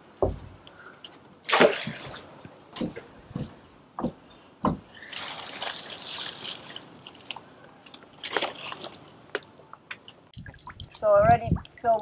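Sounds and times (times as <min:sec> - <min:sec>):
plastic bottles and wrappers crinkling: 0:04.9 - 0:10.0.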